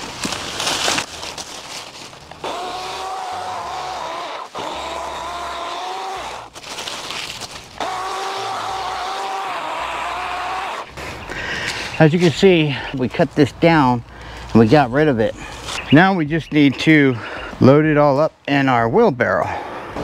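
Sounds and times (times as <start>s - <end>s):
rustling: 0.0s - 2.7s, 6.2s - 7.9s
electric chainsaw whining: 2.4s - 6.6s, 7.8s - 10.9s.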